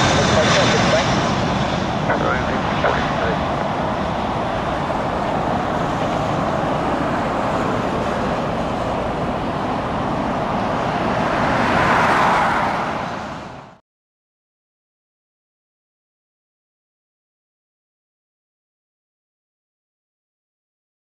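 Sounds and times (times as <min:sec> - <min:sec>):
jet airliner engine noise: 0:00.0 - 0:13.8.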